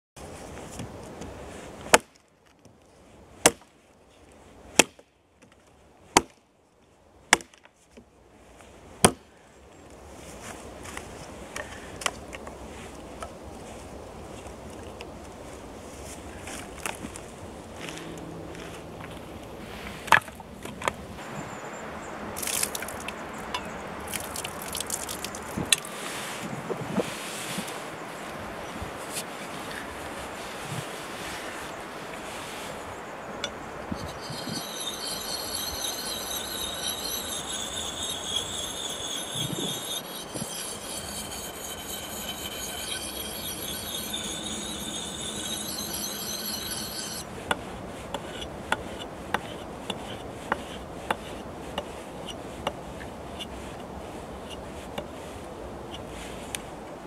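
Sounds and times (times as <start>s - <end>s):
axe chopping wood: 4.8s - 5.0s
liquid pouring and splashing: 24.1s - 25.8s.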